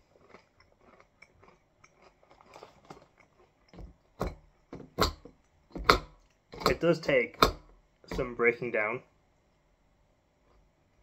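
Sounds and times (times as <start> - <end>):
granola being chewed: 0.0 - 8.4.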